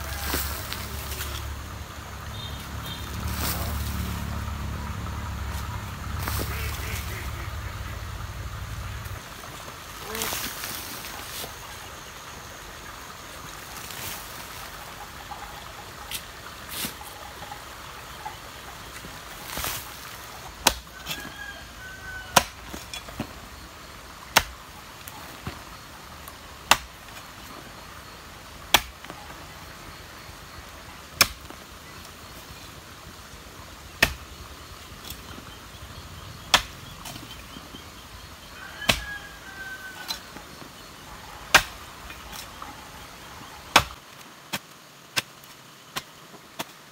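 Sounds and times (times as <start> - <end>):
hoe chopping into clay soil: 20.6 - 21.3, 22.2 - 23.4, 24.3 - 24.6, 26.6 - 27.3, 28.7 - 29.2, 31.1 - 31.6, 33.9 - 34.4, 36.4 - 37.6, 38.8 - 39.2, 41.5 - 42.6, 43.7 - 46.9.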